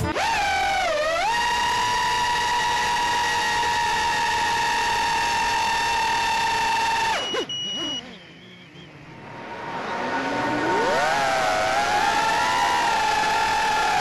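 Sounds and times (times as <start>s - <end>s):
drone motors whining: 0.0s - 14.0s
short high buzzer beep: 7.0s - 8.9s.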